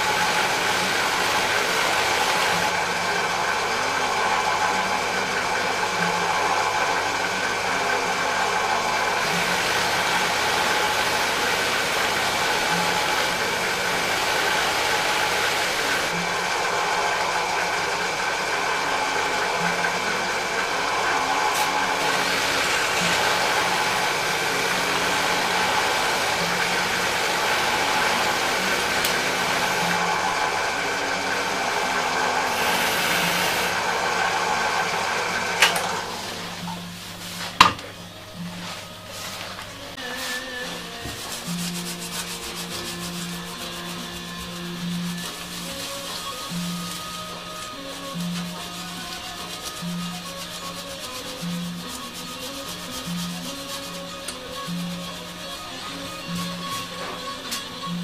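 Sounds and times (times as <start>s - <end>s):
metal pieces hissing against brush wheel: 0.0s - 4.5s, 9.1s - 16.2s, 21.5s - 30.4s, 31.4s - 33.9s, 40.2s - 58.0s
drill press motor running: 0.0s - 39.8s, 40.6s - 58.0s.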